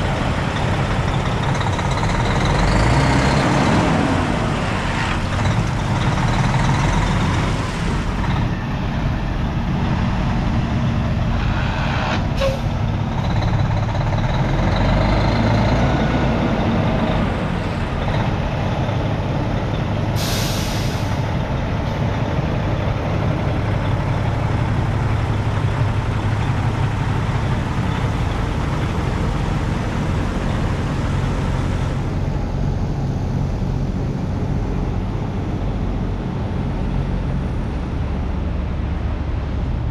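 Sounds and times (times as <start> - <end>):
diesel truck engine idling: 0.0 - 11.6, 12.2 - 39.9
air hiss: 20.2 - 21.3.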